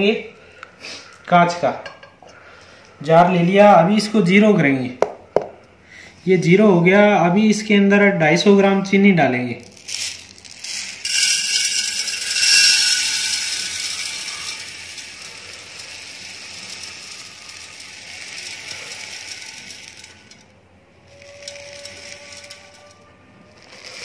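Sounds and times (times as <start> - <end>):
sugar pouring into glass jar: 9.7 - 24.0.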